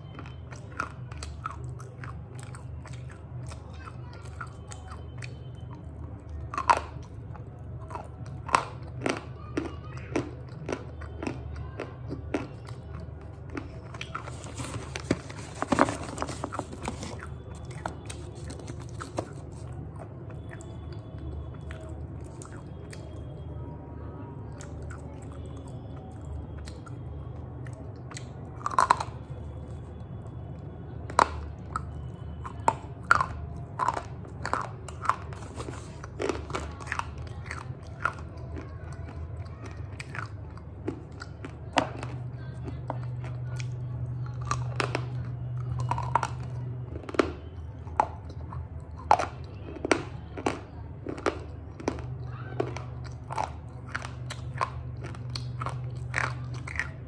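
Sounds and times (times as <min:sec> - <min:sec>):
pencils being bitten and crunched: 0:00.0 - 0:23.4, 0:31.0 - 0:57.0
cardboard packet rustling: 0:14.2 - 0:17.3.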